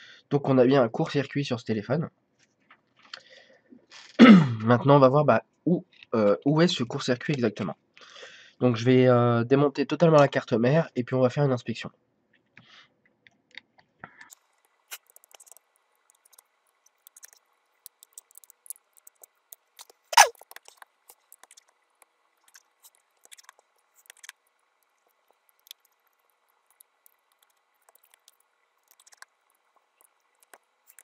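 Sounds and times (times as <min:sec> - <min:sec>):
small hand tools clicking and scraping: 0:14.2 - 0:31.0.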